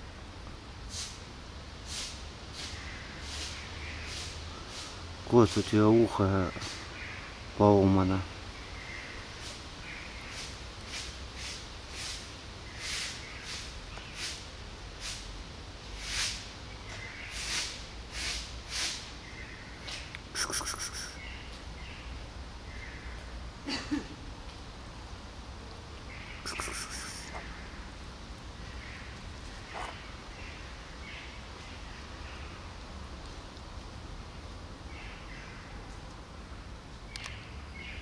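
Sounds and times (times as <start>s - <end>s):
faint bird chirps: 19.2s - 23.3s, 26.1s - 27.8s
bird chirping: 26.0s - 27.6s.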